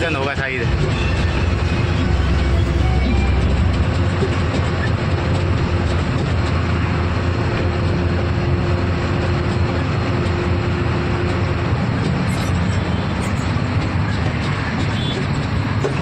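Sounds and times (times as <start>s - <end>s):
road noise: 0.0s - 16.0s
truck engine drone: 0.0s - 16.0s.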